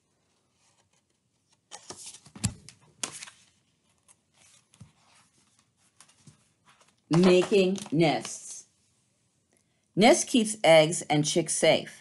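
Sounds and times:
paper pages rustling: 0.2s - 8.5s.

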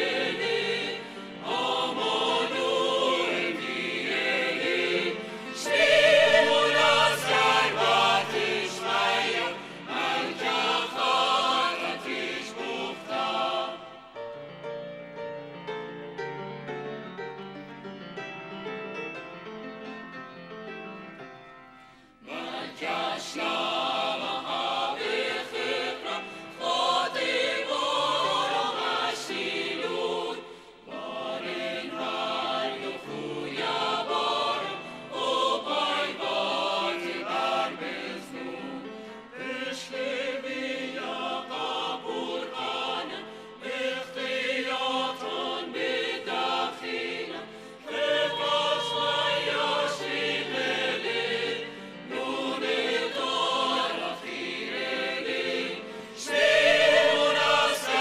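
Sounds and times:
mixed choir singing: 0.0s - 14.4s, 22.2s - 58.0s.

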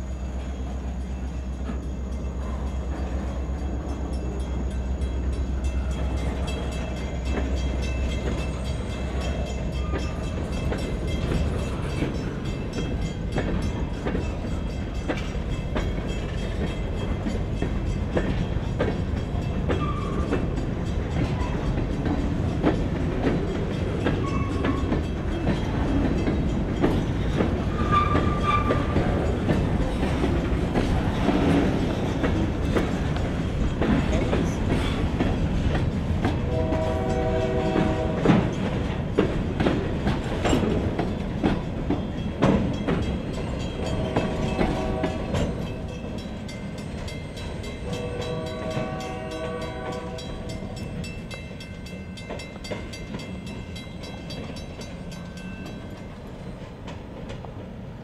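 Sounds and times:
train rumble: 0.0s - 58.0s
train wheels clacking over rail joints: 1.4s - 57.7s
wheel squeals: 19.7s - 20.4s, 26.8s - 29.5s.

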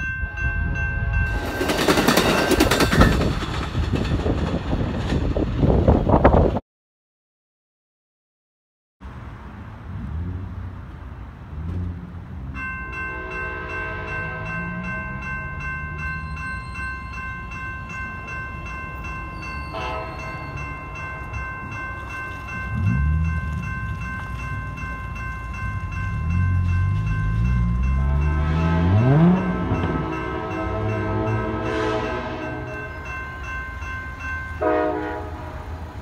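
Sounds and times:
railroad crossing bell ringing: 0.0s - 4.1s, 12.3s - 36.0s.

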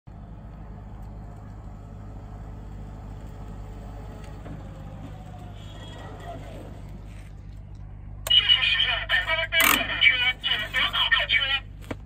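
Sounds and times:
vehicle engine rumbling: 0.1s - 12.0s.

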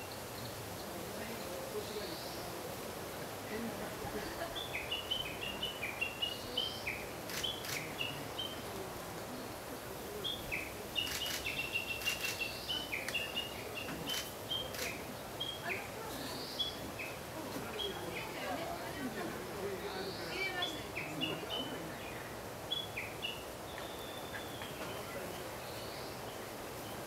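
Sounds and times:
songbirds chirping: 0.0s - 27.0s
sharp clicks: 11.0s - 13.2s.

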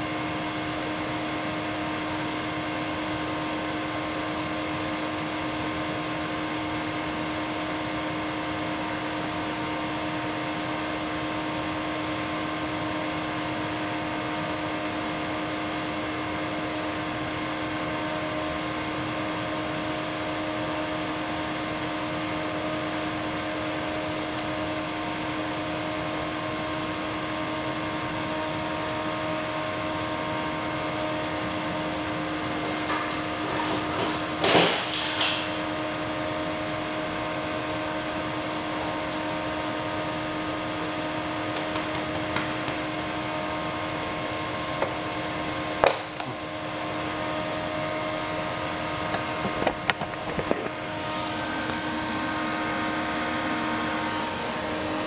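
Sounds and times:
electrical hum: 0.0s - 55.0s
sharp clicks and knocks: 41.5s - 42.8s.

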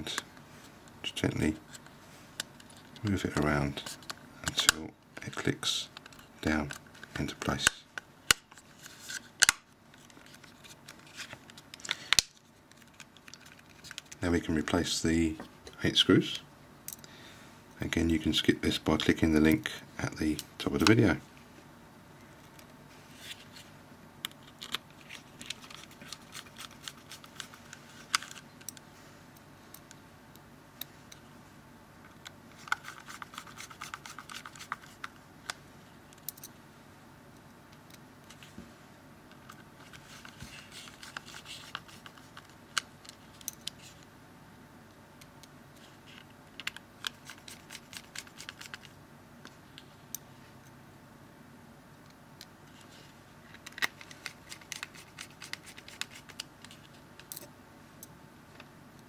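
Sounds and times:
screwdriver clicking and scratching: 32.6s - 35.1s, 46.6s - 48.9s, 53.5s - 57.5s.

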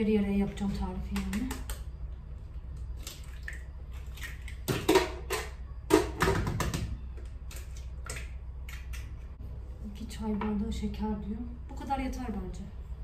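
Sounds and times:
eggs cracking against a bowl: 2.7s - 9.3s.

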